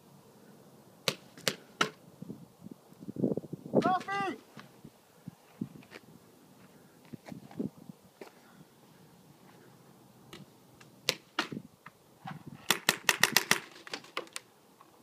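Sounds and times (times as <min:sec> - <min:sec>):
paintball markers firing: 0:12.7 - 0:14.5.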